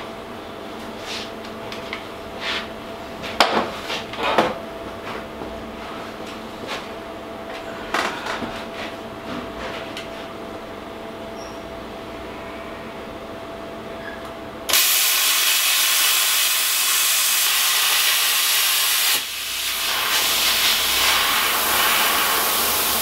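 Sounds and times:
plasma cutter hissing: 14.7 - 23.0.

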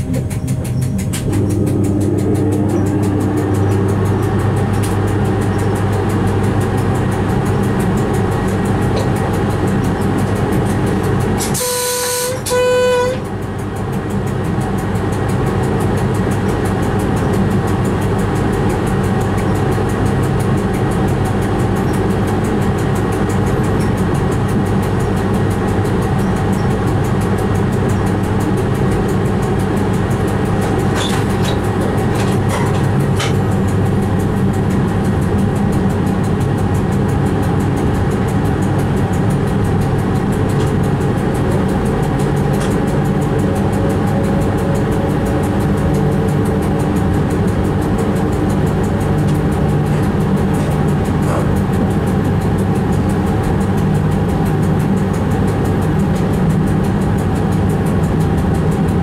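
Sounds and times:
train running on track: 0.0 - 59.0
train horn blasts: 11.4 - 13.5.

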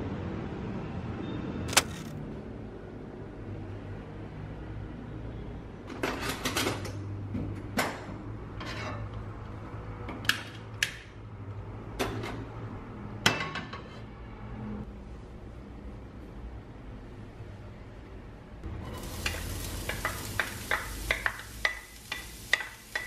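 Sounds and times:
kitchenware clattering: 18.8 - 23.0
frying pan knocking on metal grate: 19.0 - 23.0.

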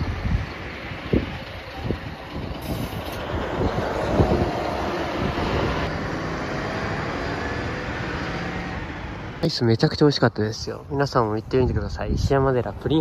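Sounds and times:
bus engine running: 0.0 - 9.4.

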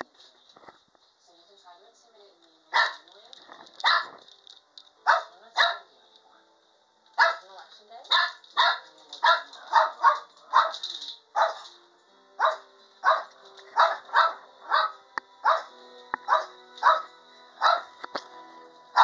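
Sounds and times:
small dog barking: 2.7 - 3.1, 3.8 - 4.1, 5.0 - 5.9, 7.2 - 7.4, 8.1 - 10.8, 11.4 - 11.7, 12.4 - 15.7, 16.3 - 17.9.

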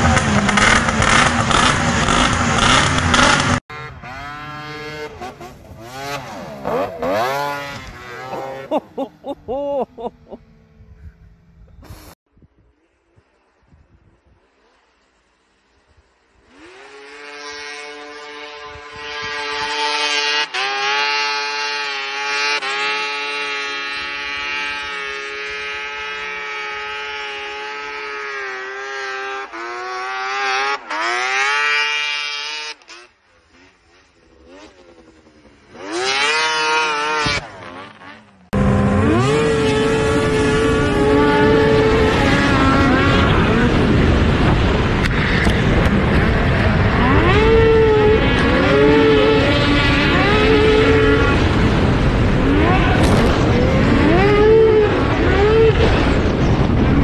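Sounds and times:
snowmobile engines revving high: 0.0 - 11.0, 16.2 - 57.0
wind noise: 39.0 - 57.0.

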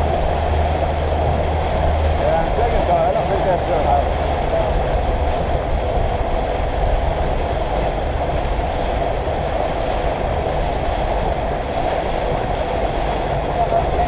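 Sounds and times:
boat motor running: 0.0 - 14.0
water noise: 0.0 - 14.0
wind noise: 0.0 - 14.0.

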